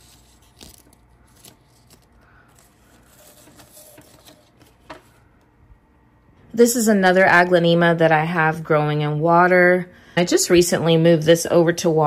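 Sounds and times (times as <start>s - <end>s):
plant leaves rustling: 0.0s - 4.9s.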